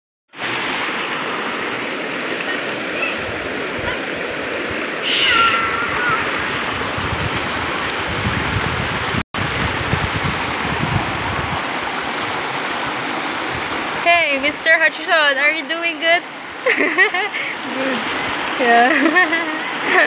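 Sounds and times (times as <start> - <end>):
stream rushing over rocks: 0.4 - 20.0
high downward-sliding call: 5.0 - 6.7.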